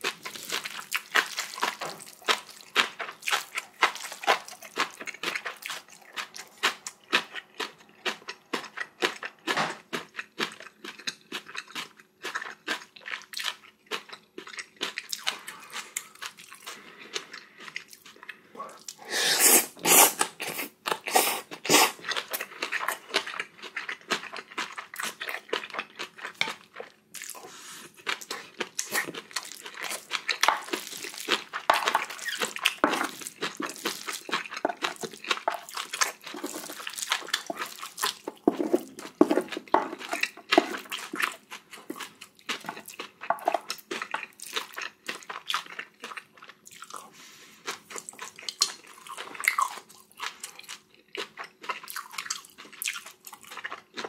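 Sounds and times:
person chewing and crunching food: 0.0s - 54.0s.

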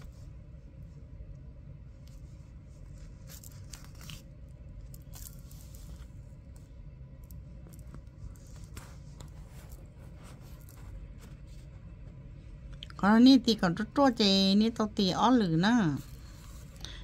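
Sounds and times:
low background hum: 0.0s - 17.0s
fabric rustling: 2.0s - 6.6s
thread pulled through cloth: 2.0s - 6.6s.

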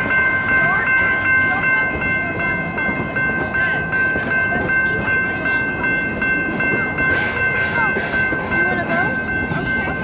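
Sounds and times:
passing train: 0.0s - 10.0s
railroad crossing bells ringing: 0.0s - 10.0s.

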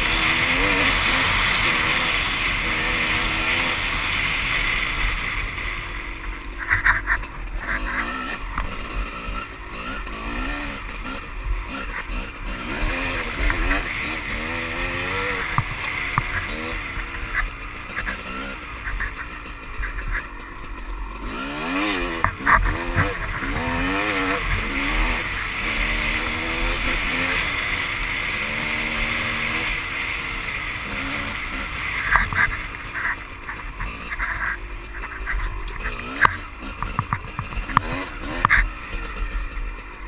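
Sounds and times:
dirt bike engine revving: 0.0s - 40.0s
knocks of stones and chassis: 6.5s - 9.1s, 12.9s - 24.8s, 31.9s - 39.7s.

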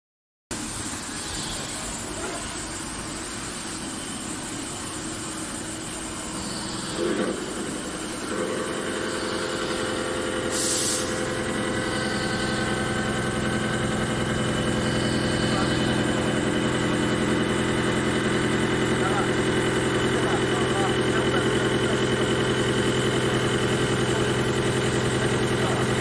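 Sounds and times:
steady multi-tone whine: 0.5s - 26.0s
lathe machine hum: 0.6s - 26.0s
short hiss: 10.5s - 11.2s.

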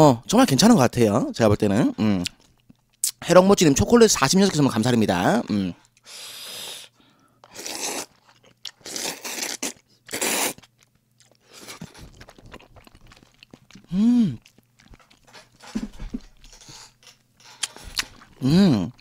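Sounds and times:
wet chewing: 7.4s - 19.0s
person humming: 13.9s - 14.4s, 18.4s - 19.0s.

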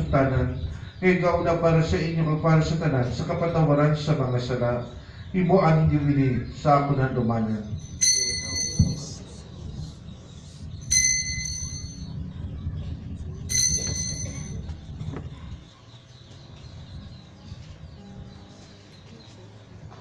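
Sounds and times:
altar bell ringing: 7.7s - 9.4s, 10.8s - 12.2s, 13.5s - 14.7s.

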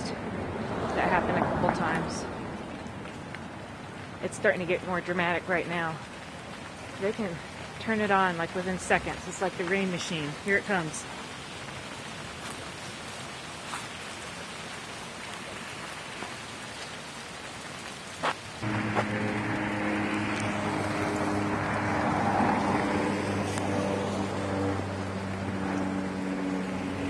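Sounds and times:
rain hissing: 0.4s - 27.0s
low engine hum: 18.6s - 27.0s.

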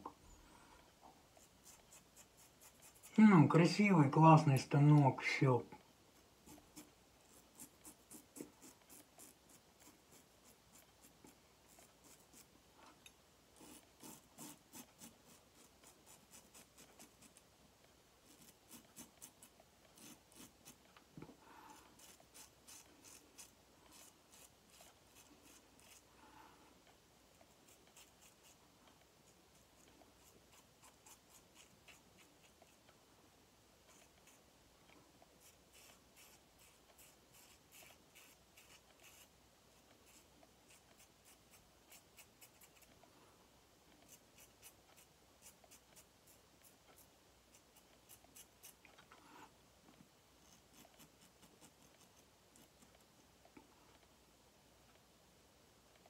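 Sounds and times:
razor scraping stubble: 1.3s - 3.2s, 6.4s - 12.5s, 13.6s - 17.4s, 18.2s - 20.9s, 21.8s - 26.1s, 27.4s - 32.8s, 35.4s - 43.0s.

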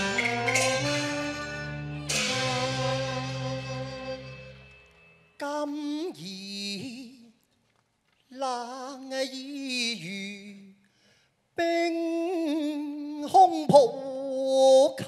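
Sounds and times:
man singing opera unaccompanied: 2.2s - 4.3s, 5.4s - 7.4s, 8.3s - 10.8s, 11.6s - 15.0s.

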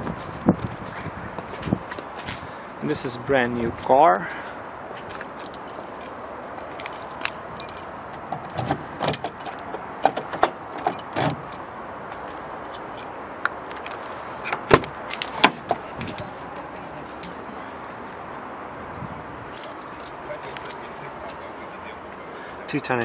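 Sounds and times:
keys jangling: 5.4s - 5.9s, 6.7s - 13.4s
van door unlatching and opening: 8.3s - 11.6s.

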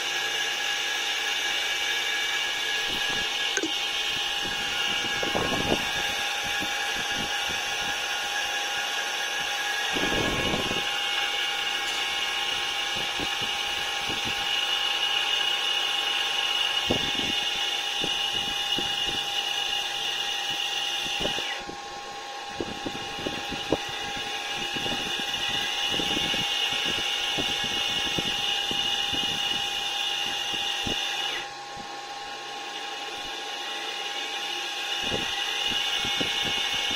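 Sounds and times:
high-pitched electrical whine: 0.0s - 36.9s
low motor hum: 0.1s - 14.8s.

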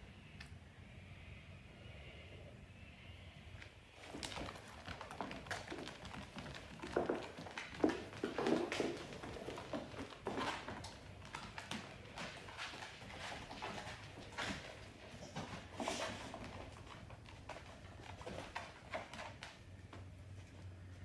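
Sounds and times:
dog claws tapping on floor: 4.0s - 20.0s.

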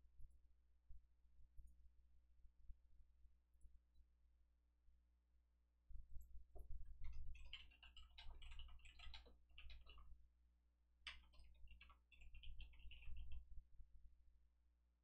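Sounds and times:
typing on computer keyboard: 7.3s - 10.1s, 11.1s - 13.4s.

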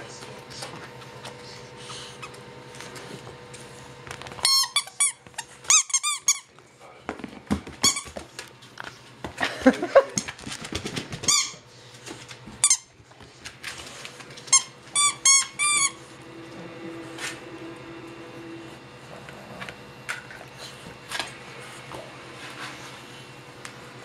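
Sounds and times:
squeaky dog toy: 4.4s - 6.4s, 14.5s - 16.0s.

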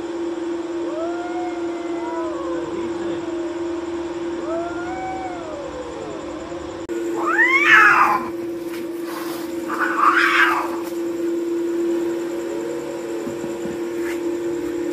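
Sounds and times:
cats yowling and screeching: 0.8s - 3.6s, 4.4s - 11.0s.

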